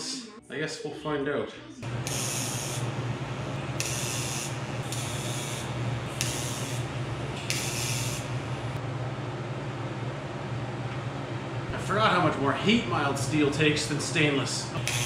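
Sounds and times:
hissing welding arc bursts: 1.8 - 8.8, 14.8 - 15.0
low welder hum: 1.8 - 15.0.

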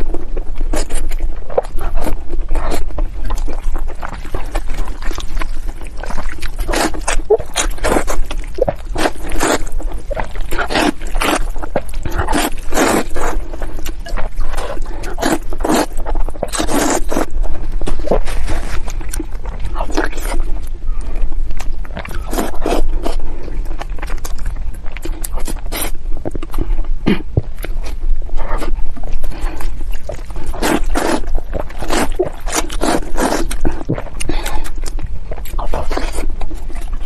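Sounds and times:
wet chewing: 0.0 - 37.0
slurping noodles: 4.9 - 13.7, 14.3 - 17.3, 29.6 - 34.7.

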